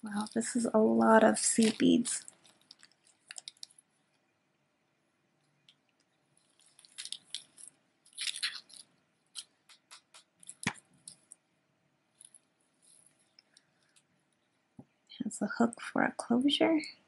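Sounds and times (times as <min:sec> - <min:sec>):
beads rustling and clicking: 0:00.0 - 0:04.2, 0:05.4 - 0:11.4, 0:12.1 - 0:14.6.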